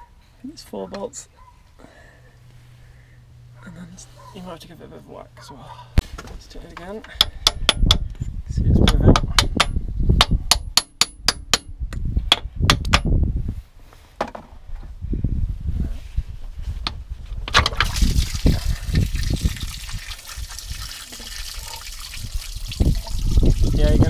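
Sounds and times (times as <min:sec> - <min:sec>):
coolant gushing and trickling: 0:17.7 - 0:24.0.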